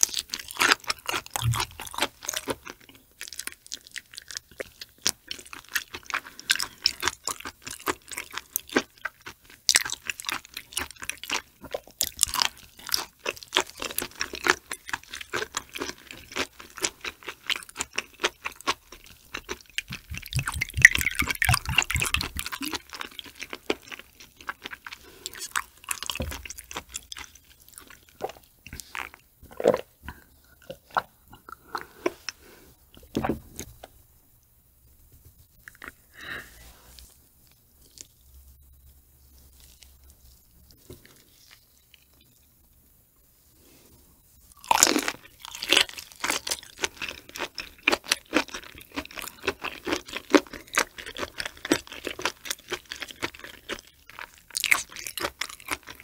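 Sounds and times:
wet chewing mouth sounds: 0.0 - 33.1, 44.6 - 56.0.

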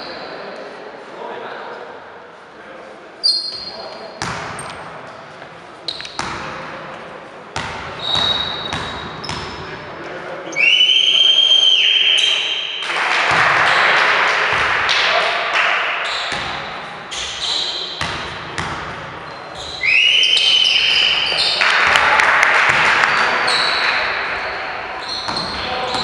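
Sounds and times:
referee's whistle: 3.2 - 3.8, 8.0 - 9.1, 10.5 - 12.8, 19.6 - 21.6.

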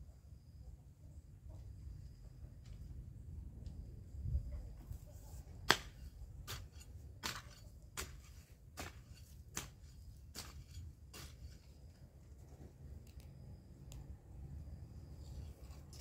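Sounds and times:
plants snapping by hand: 5.7 - 6.0.

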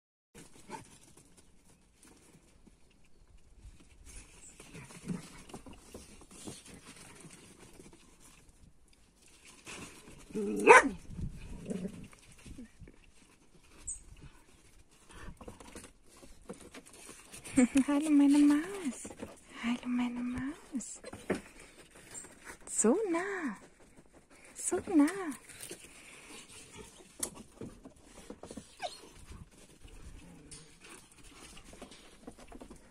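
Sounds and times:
dog barking: 10.6 - 11.0.

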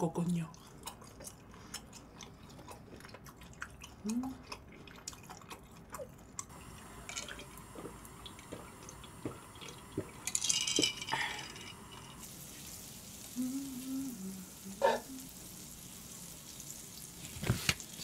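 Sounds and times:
butter sizzling in a frying pan: 11.8 - 13.8, 14.4 - 18.0.

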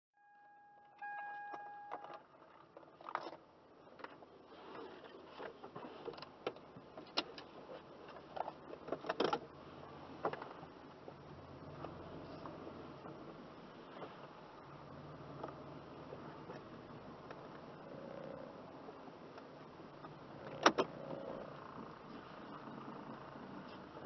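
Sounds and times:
faint low rumble: 9.4 - 24.0.

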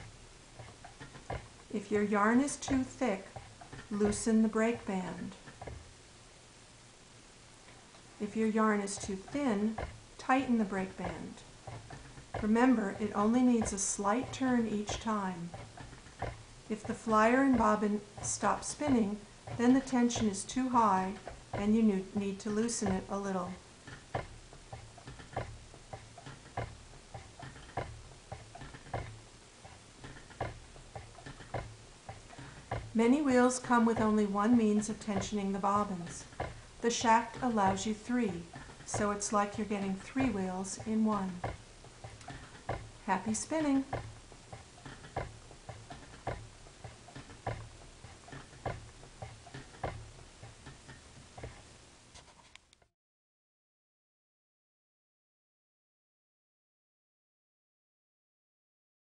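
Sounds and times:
spinning wheel knocking: 0.0 - 6.0, 8.0 - 51.8
rumble of turning wheel: 0.0 - 6.2, 7.8 - 52.0
faint ticks: 7.6 - 52.9.

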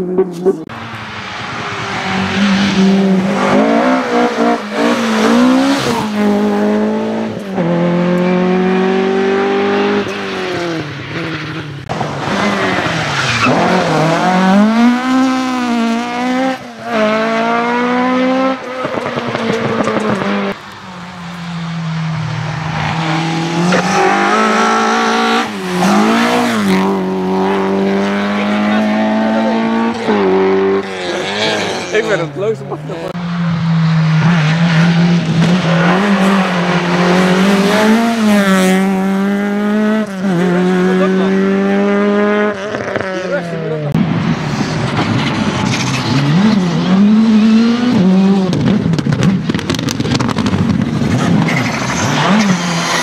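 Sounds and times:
rally cars driving past: 0.0 - 53.0
engine revving through gear changes: 34.2 - 43.2.

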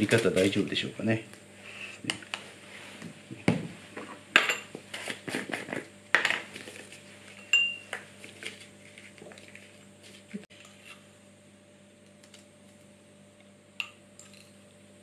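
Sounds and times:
metal clinking on glass: 7.5 - 7.8.

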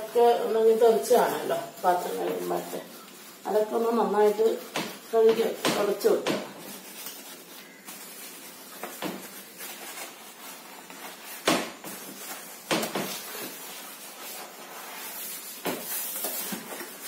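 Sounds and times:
hand scrubbing a steel sink: 0.0 - 7.3.

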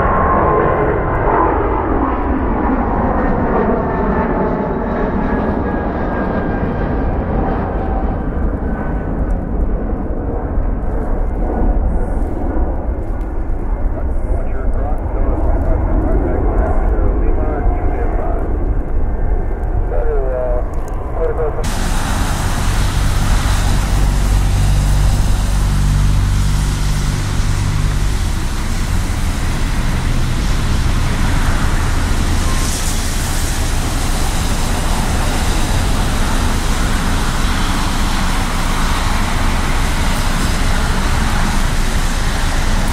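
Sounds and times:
heavy vehicle engine rumble: 10.6 - 42.9
road traffic noise: 21.2 - 42.9.

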